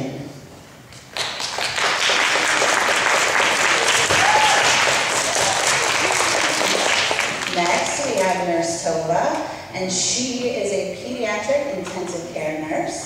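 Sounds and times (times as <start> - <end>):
children clapping: 1.0 - 8.3.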